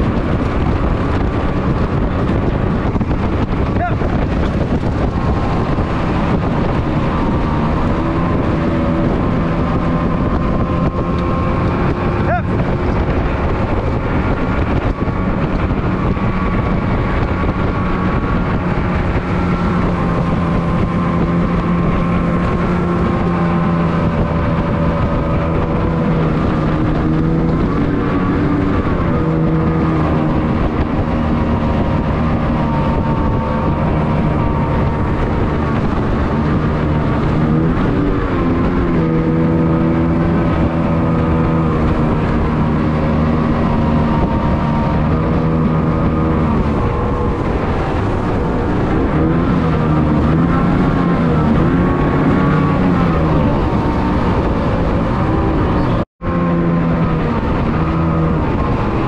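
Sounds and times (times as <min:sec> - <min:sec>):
outboard motor droning: 0:00.0 - 0:59.0.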